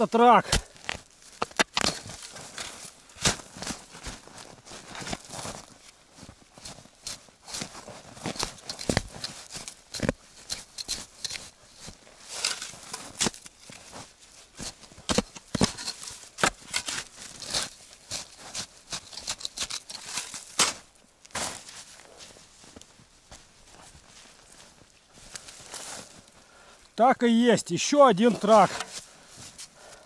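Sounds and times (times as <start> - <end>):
shovel striking frozen soil: 0.4 - 5.7, 6.6 - 21.9, 28.2 - 29.8.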